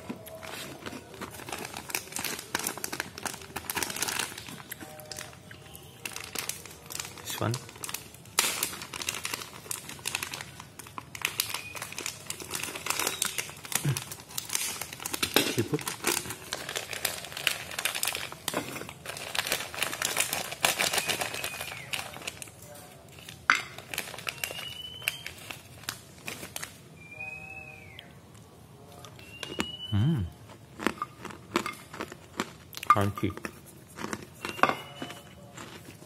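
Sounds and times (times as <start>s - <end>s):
plastic bag crinkling: 0.0s - 26.8s.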